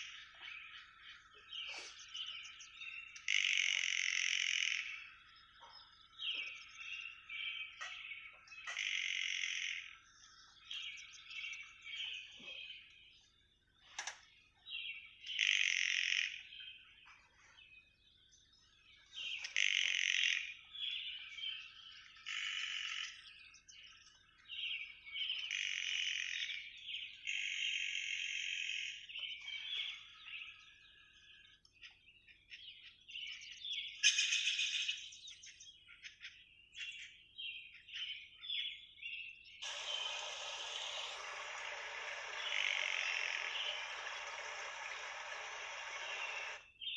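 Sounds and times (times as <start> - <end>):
bird chorus: 0.0 - 46.9
birds singing and trilling: 0.0 - 46.9.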